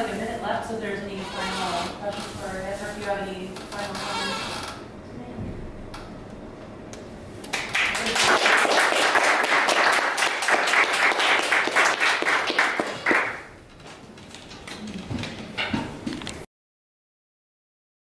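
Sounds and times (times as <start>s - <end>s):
audience applauding: 7.5s - 13.5s.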